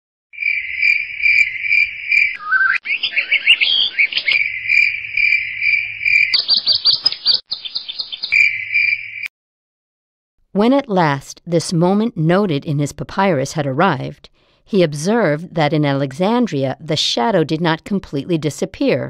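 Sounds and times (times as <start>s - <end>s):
crickets trilling: 0.4s - 9.2s
short chirping calls: 0.4s - 9.3s.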